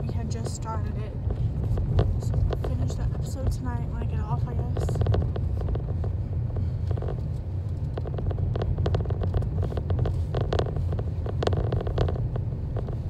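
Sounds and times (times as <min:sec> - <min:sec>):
rattling clicks: 0:00.0 - 0:13.0
road and engine rumble: 0:00.0 - 0:13.0.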